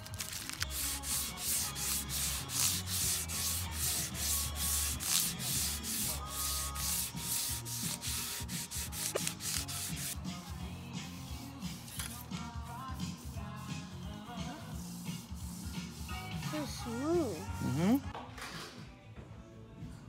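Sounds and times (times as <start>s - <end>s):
sanding block rasping on wood: 0.2s - 10.3s, 14.6s - 16.9s.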